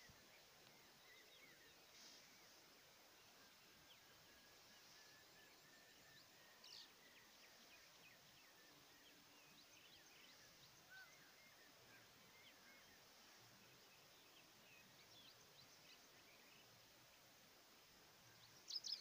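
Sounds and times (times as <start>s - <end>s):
low open-air hiss: 0.0s - 19.0s.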